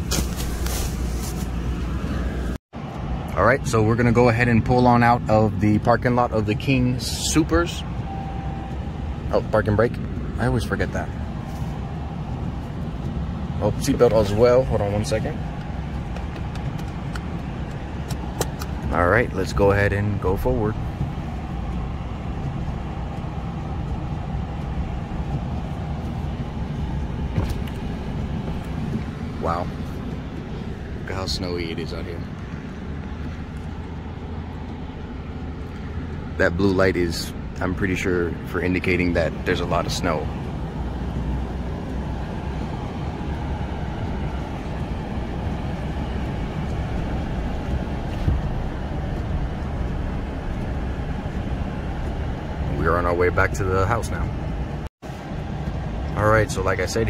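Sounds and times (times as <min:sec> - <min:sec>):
truck engine and road rumble: 0:00.0 - 0:57.0.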